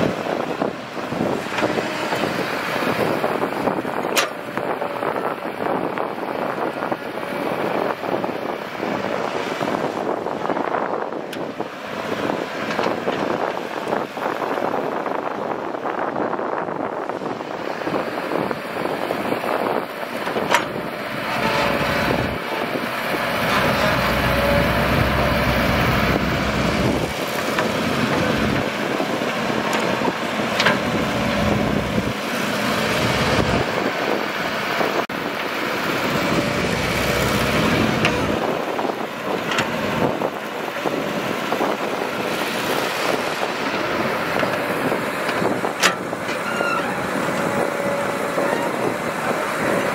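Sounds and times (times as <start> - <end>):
excavator diesel engine under load: 0.0 - 49.9.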